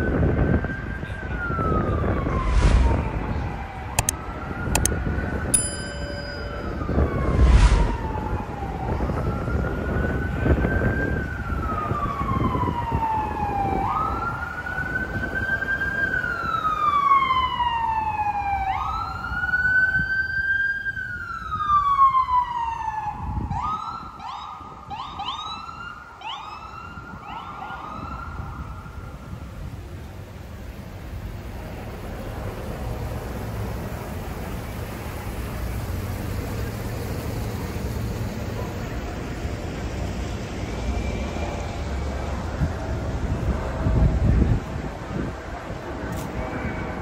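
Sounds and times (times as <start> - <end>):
emergency siren wailing: 0.0 - 5.6, 6.4 - 30.1
street noise: 0.0 - 47.0.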